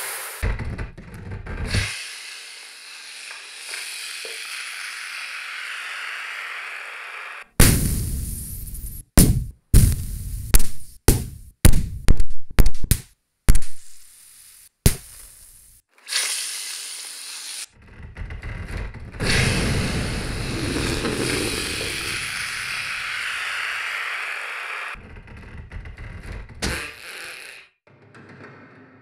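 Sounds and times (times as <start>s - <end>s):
capacitors bursting with sharp bangs: 7.6s - 14.0s, 19.2s - 22.3s.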